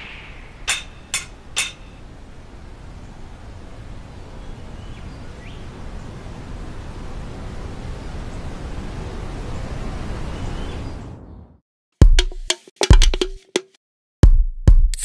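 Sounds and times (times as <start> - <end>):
sharp clinking hits: 0.0 - 2.0.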